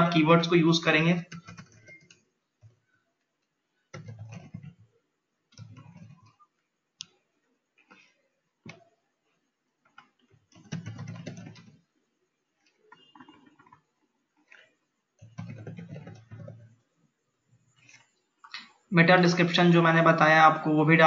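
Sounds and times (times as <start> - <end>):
computer keyboard typing: 0.0 - 9.0, 9.8 - 11.9, 12.5 - 16.9.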